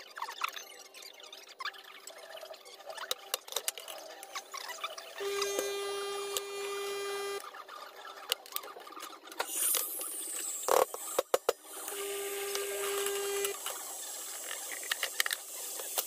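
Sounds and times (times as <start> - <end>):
espresso machine motor humming: 5.2 - 7.4, 11.7 - 13.6.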